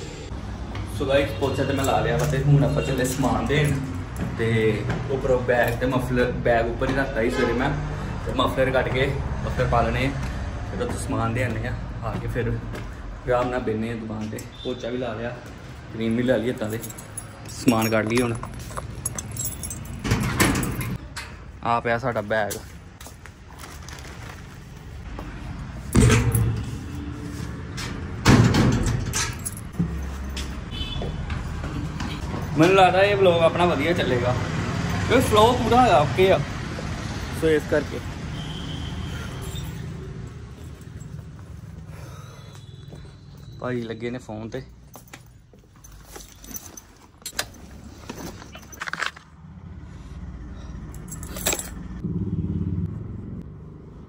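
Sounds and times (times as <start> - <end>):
keys jangling: 16.4 - 21.0, 28.7 - 30.7, 44.8 - 49.3, 50.8 - 52.0
camera handling clinks and rattles: 16.7 - 21.0, 45.0 - 49.3, 51.0 - 51.8.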